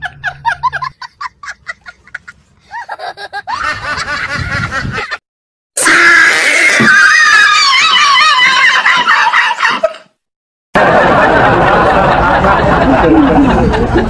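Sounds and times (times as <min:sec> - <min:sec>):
snickering laughter: 0:00.0 - 0:05.2, 0:10.8 - 0:14.0.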